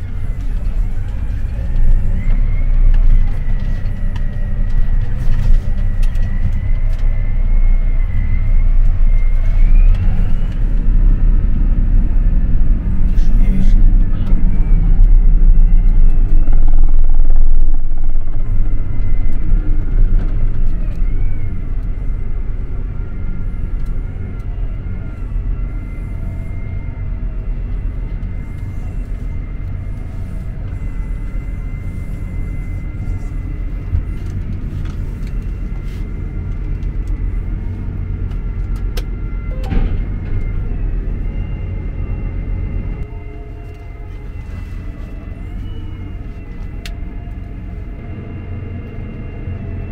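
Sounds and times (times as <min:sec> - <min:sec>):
high whine: 0:00.0 - 0:49.9
tractor engine rumble: 0:00.0 - 0:49.9.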